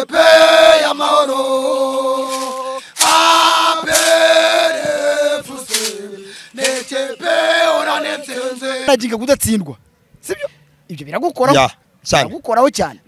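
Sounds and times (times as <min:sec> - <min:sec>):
male voices chanting: 0:00.0 - 0:09.1.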